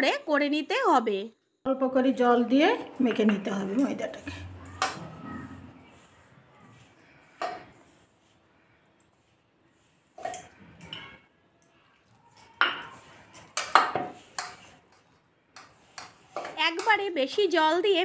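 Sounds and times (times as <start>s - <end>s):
hand mixing dough in bowl: 2.7s - 11.2s, 12.0s - 18.0s
bangles clinking on metal bowl: 10.2s - 15.1s.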